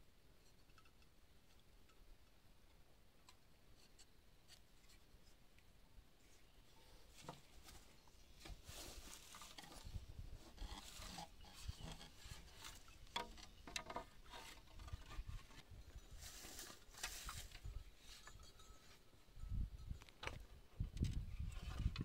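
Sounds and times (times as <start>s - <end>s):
bamboo clicking and knocking: 0.4s - 5.7s, 9.3s - 15.6s.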